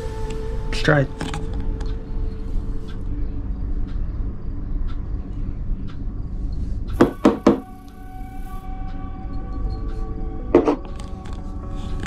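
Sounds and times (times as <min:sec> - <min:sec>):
steady low rumble: 0:00.0 - 0:12.0
faint light ticks: 0:04.8 - 0:07.0.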